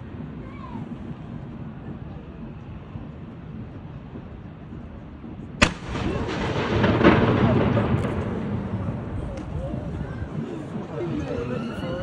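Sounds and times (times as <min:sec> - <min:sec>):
gun blast: 0:05.6 - 0:09.2
loud rolling echo: 0:05.6 - 0:12.0.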